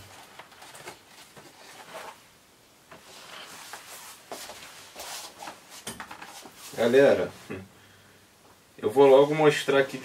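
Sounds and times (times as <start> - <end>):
packaging rustling: 0.0 - 2.3.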